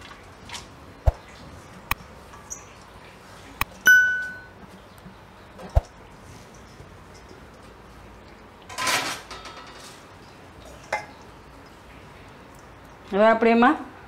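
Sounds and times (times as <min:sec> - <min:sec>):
bright bell ding: 0:03.9 - 0:04.6.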